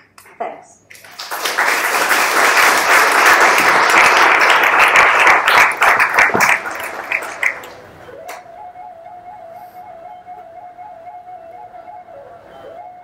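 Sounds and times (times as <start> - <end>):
audience applauding: 0.9 - 8.0.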